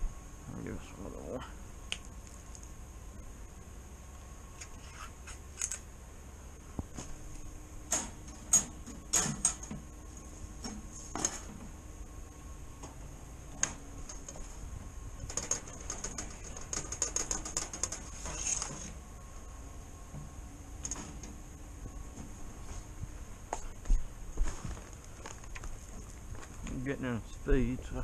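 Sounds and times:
small rattling ticks: 15.2 - 18.7.

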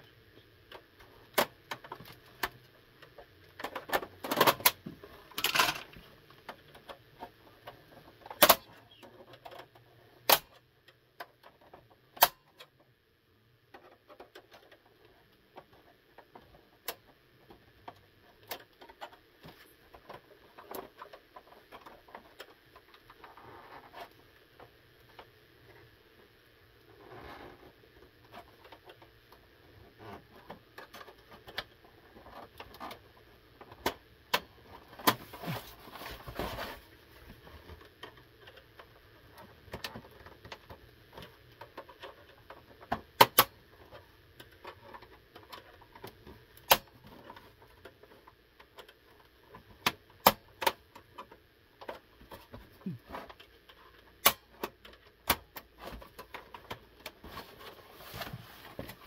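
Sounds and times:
plastic scraping: 34.6 - 43.0
plastic clicks and snaps: 45.4 - 48.0, 49.8 - 57.2.

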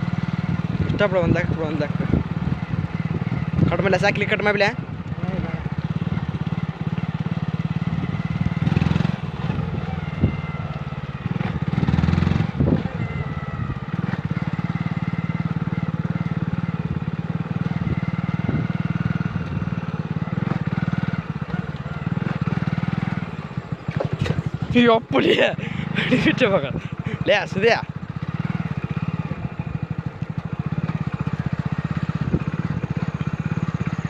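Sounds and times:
motorcycle engine running: 0.0 - 34.0.

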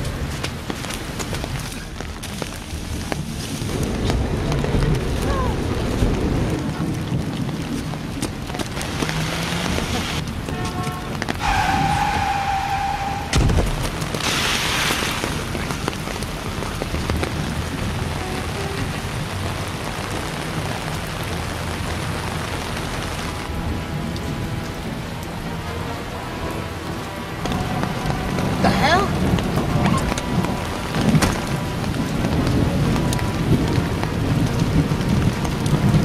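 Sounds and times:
rain on a wet road: 0.0 - 36.0
background music: 22.4 - 35.8.

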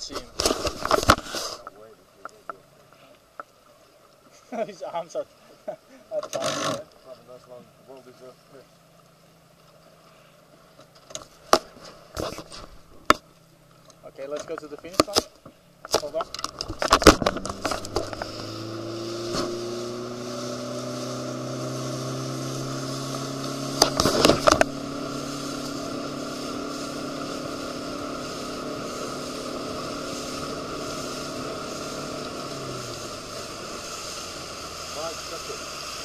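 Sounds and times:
wind and water hiss: 0.0 - 36.0
motorboat engine running: 15.6 - 36.0.

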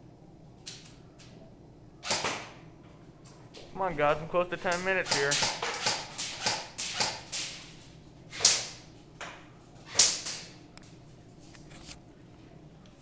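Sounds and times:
airsoft gun shots: 2.0 - 2.6, 8.3 - 8.8.

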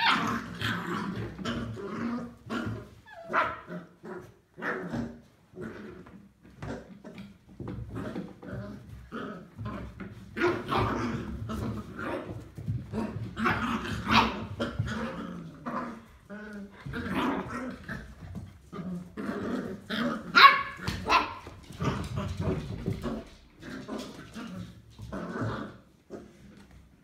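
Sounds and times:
puppy high cry: 0.0 - 0.5
puppies yapping and growling: 0.0 - 26.4
puppy barks: 13.4 - 14.7, 20.3 - 21.6.

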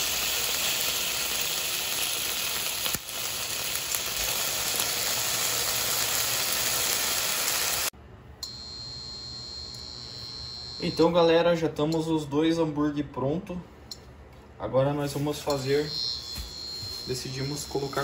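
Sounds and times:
burger patty sizzling in a pan: 0.0 - 7.9.

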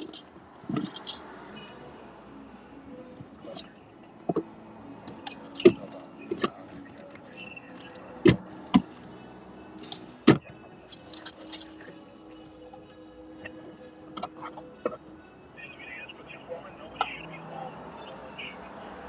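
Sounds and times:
handling clicks and rattles in car: 0.0 - 1.3, 3.2 - 9.1, 9.8 - 12.0.

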